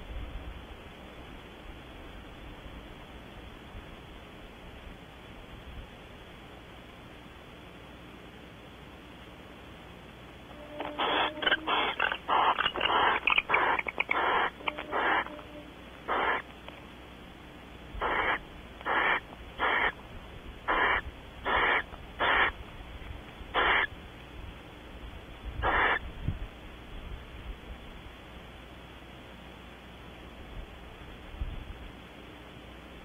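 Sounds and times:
owl hissing calls: 10.6 - 16.5, 18.0 - 20.0, 20.6 - 22.6, 23.5 - 23.9, 25.6 - 26.0.

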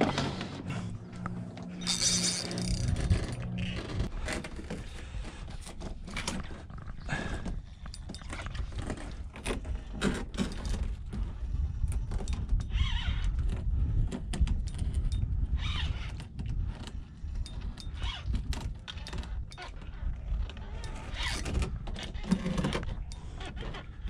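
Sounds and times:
wind buffeting microphone: 0.0 - 24.0
fishing reel clicks and knocks: 1.8 - 4.1.

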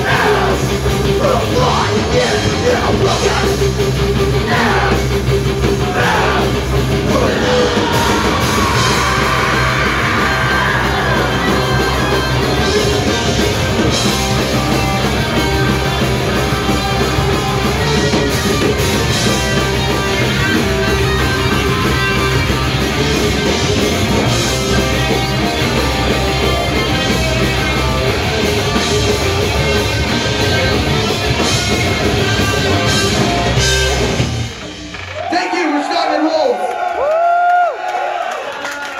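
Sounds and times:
electric guitars: 0.0 - 35.9
drums: 0.0 - 38.9
person shouting vocals: 7.1 - 8.4.

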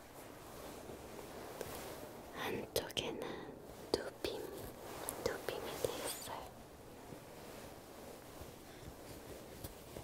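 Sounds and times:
fingers rustling fleece: 3.7 - 10.0.

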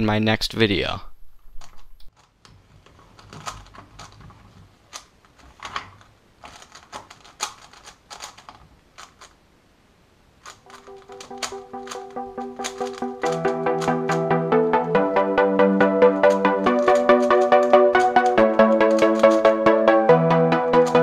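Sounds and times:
speed cube clacking: 2.1 - 9.4, 10.4 - 21.0
music: 10.7 - 21.0.

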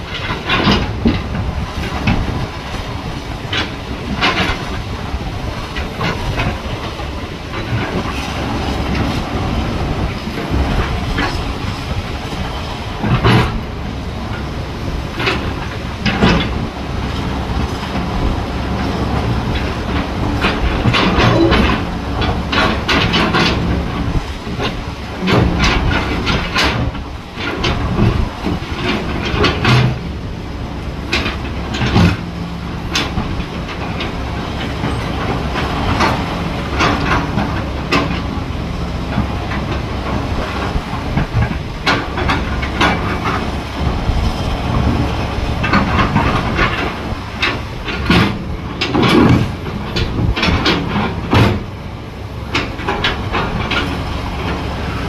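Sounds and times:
metal clanks and knocks: 0.0 - 30.2, 30.9 - 51.8, 52.4 - 55.0
excavator diesel engine: 0.0 - 55.0.

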